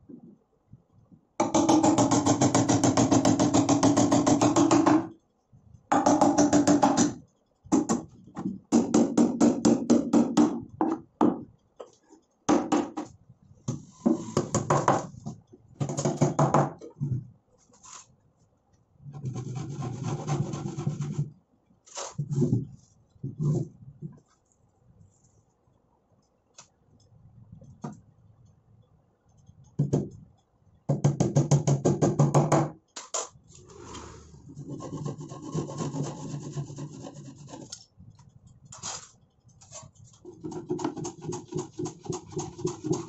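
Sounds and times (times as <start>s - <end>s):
scraping on wooden drawer: 13.8s - 14.7s, 33.6s - 35.9s.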